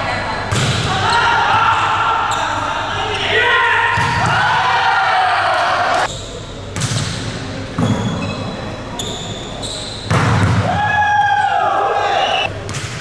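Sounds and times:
sneakers squeaking on court: 7.8s - 10.3s.

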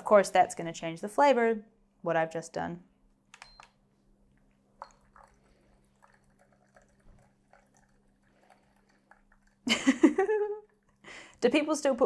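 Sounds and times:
water trickling into glass carafe: 4.8s - 9.7s.

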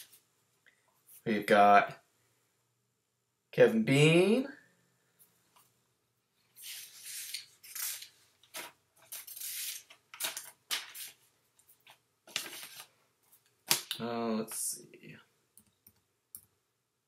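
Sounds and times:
notebook pages rustling: 6.5s - 13.9s.

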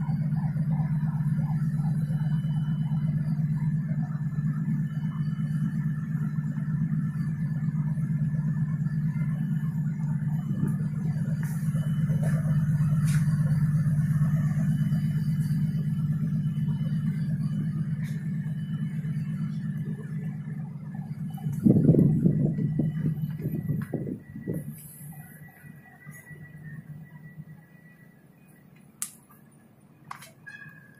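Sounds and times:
ship diesel engines droning: 0.0s - 30.9s.

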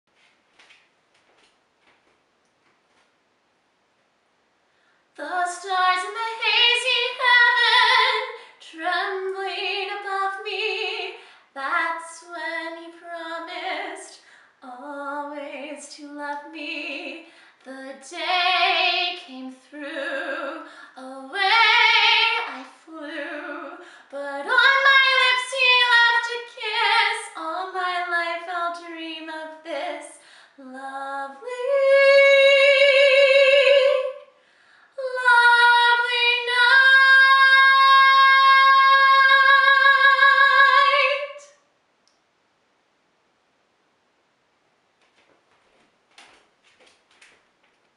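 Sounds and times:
woman singing unaccompanied: 5.2s - 34.3s, 35.0s - 41.6s.

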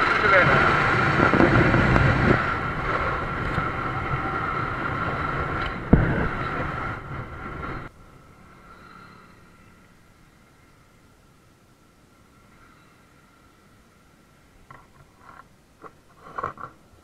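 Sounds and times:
wind rushing over microphone: 0.0s - 8.4s
motorcycle engine: 0.0s - 11.1s.

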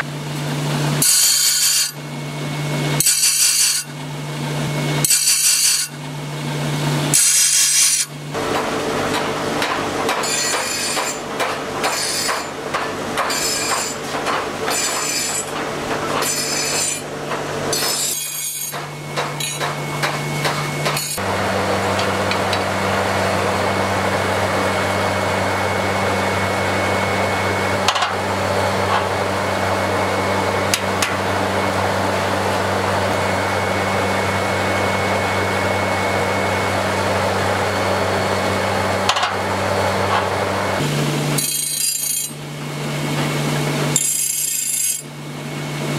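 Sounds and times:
low machine drone: 0.0s - 1.1s, 8.1s - 44.0s
grinding wheel humming: 0.0s - 45.9s
metal blade grinding: 1.0s - 2.0s, 3.0s - 3.9s, 5.0s - 6.0s, 7.1s - 8.1s, 9.1s - 21.2s, 40.1s - 42.4s, 43.9s - 45.1s.

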